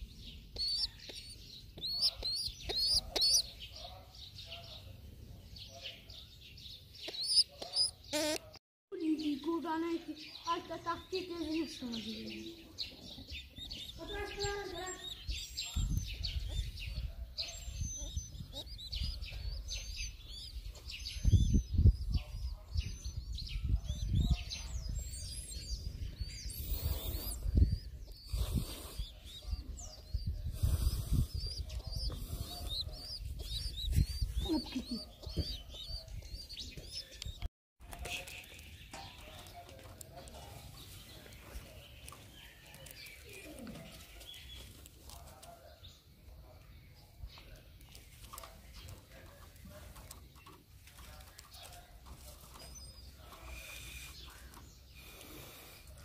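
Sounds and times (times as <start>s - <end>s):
birds chirping: 0.0s - 56.0s.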